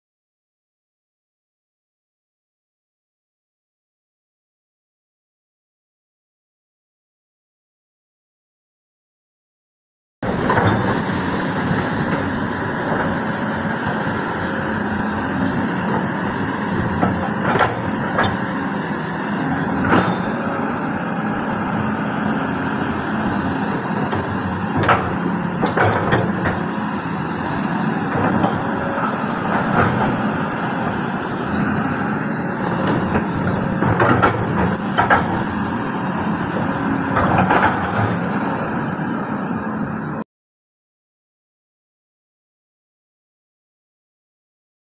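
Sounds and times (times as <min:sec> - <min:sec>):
excavator running under load: 0:10.2 - 0:40.2.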